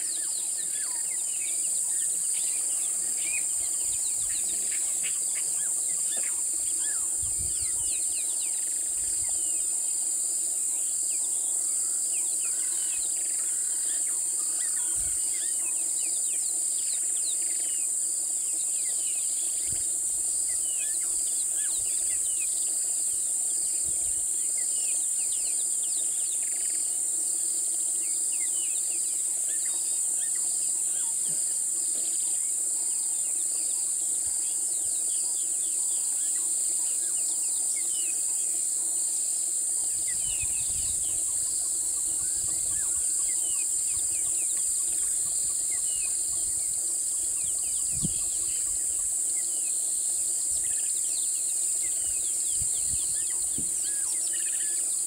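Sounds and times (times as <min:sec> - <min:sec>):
high-pitched insect drone: 0:00.0 - 0:55.0
pulsing insect: 0:00.0 - 0:55.0.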